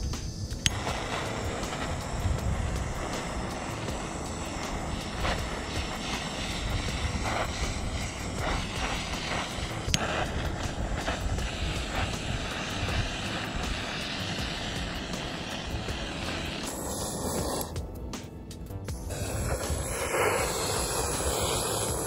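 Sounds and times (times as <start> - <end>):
sharp click: 0.0 - 0.8
kitchen torch flame roaring: 0.0 - 18.0, 18.9 - 22.0.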